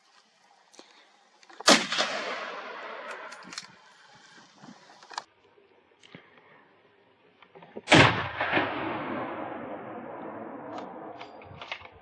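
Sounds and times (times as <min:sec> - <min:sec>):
gunshot with long echo: 0:01.6 - 0:03.5, 0:07.9 - 0:12.0.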